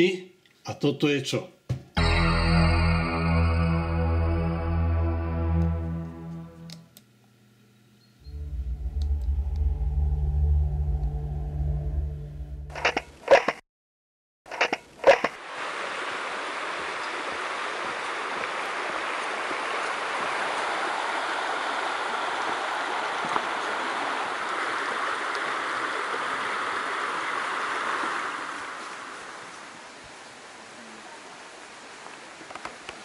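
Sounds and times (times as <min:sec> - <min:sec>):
mountain stream rushing: 0:15.4 - 0:30.6.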